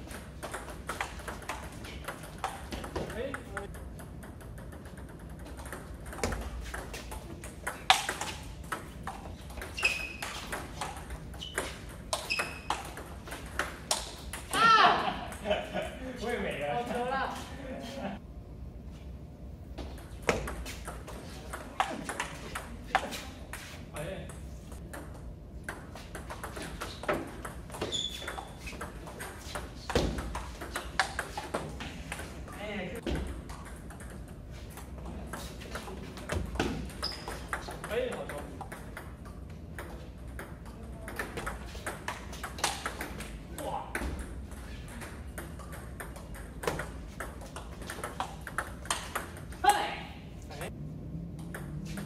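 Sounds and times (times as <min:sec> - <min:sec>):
ping pong ball hitting paddles: 0:00.0 - 0:15.5, 0:19.8 - 0:50.0, 0:51.3 - 0:52.0
ball bouncing on table: 0:00.1 - 0:14.6, 0:19.8 - 0:23.1, 0:33.0 - 0:34.3
high squeaks: 0:09.6 - 0:10.6, 0:11.3 - 0:13.0, 0:27.8 - 0:28.8, 0:36.9 - 0:37.6
short high squeak: 0:09.8 - 0:10.4, 0:11.4 - 0:12.8.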